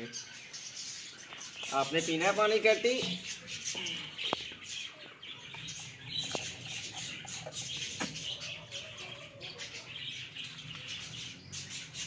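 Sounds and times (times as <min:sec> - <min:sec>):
caged birds chirping: 0:00.0 - 0:12.0.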